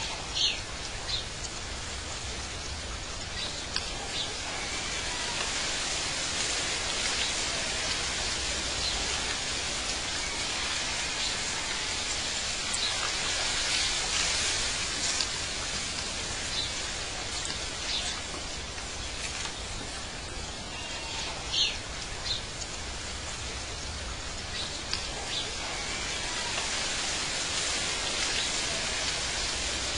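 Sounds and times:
rushing hissing ambience: 0.0 - 29.9.

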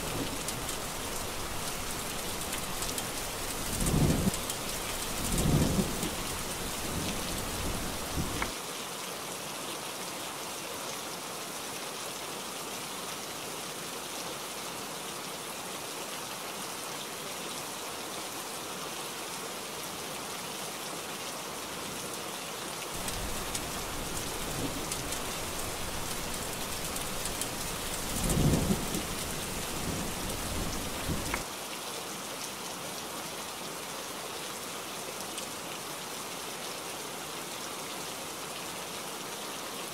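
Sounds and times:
heavy rain falling: 0.0 - 8.6, 22.8 - 31.6
rolling thunder: 23.0 - 31.4.

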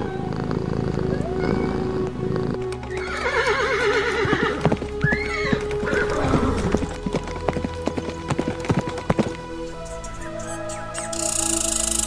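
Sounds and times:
background music: 0.0 - 12.0
horse hooves clip-clopping: 1.9 - 11.9
horse whinny: 2.6 - 7.0.

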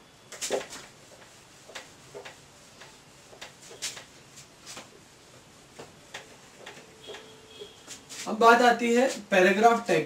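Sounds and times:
whiteboard eraser swishing: 0.3 - 9.3.

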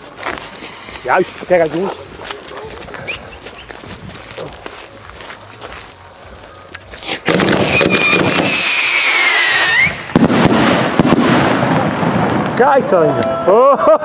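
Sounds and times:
hissing crackle of fireworks: 0.0 - 12.9
firework launch: 0.1 - 3.4, 6.8 - 12.6
sharp firework crack: 6.8 - 12.6
firework whistle sliding down: 7.0 - 10.1.

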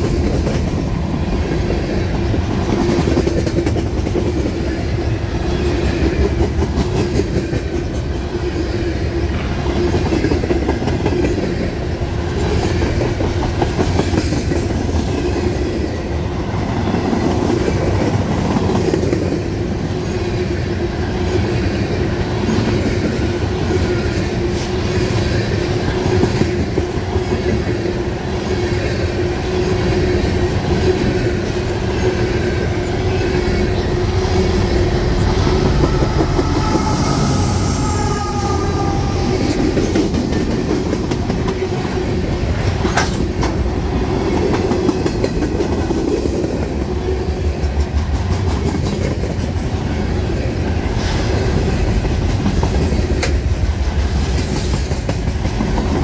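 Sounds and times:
diesel locomotive passing: 0.0 - 56.0
freight train wheels on rails: 0.0 - 56.0
steady tone: 32.6 - 40.4.

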